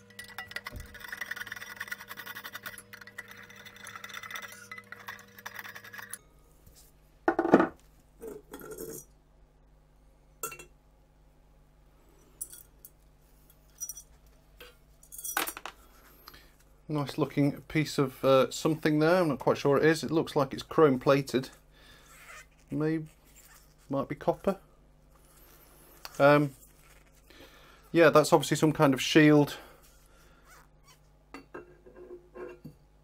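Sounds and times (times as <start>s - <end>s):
metal clinking and scraping: 0.0s - 6.2s, 8.2s - 9.1s.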